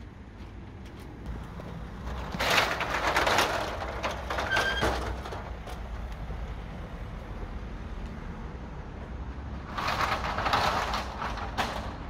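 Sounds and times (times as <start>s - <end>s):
metal roller shutter rattling: 1.3s - 6.1s, 9.6s - 12.0s
roller shutter squeal: 2.0s - 5.5s, 9.7s - 12.0s.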